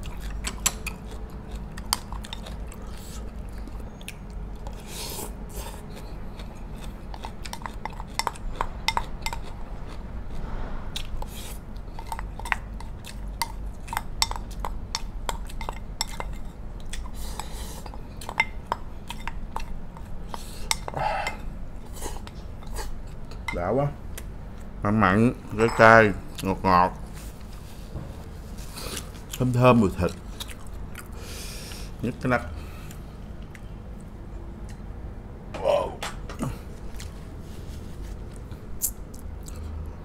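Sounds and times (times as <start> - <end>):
chewing: 0.0 - 10.4, 11.0 - 23.4, 28.6 - 31.8, 36.4 - 37.3, 38.3 - 40.0.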